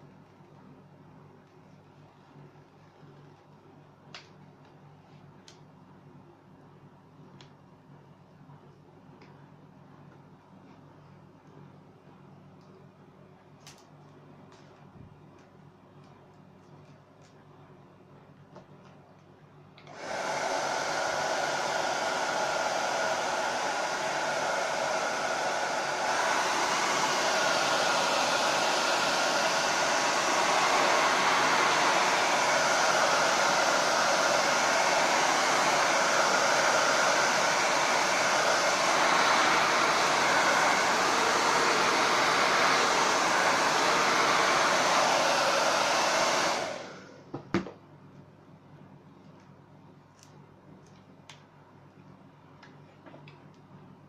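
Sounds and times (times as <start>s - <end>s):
hot-air blower running: 19.8s - 47.7s.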